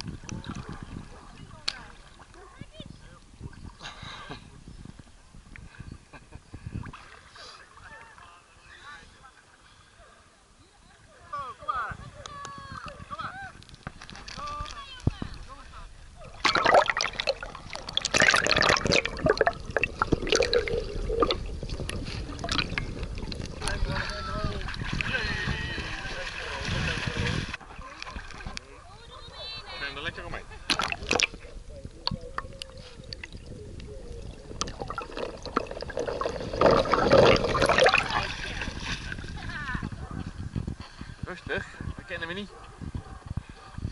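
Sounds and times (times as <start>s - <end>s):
underwater gurgling and clicking: 0.0s - 2.3s, 16.4s - 23.8s, 30.7s - 38.3s
water sloshing and gurgling: 0.0s - 8.3s, 13.6s - 43.7s.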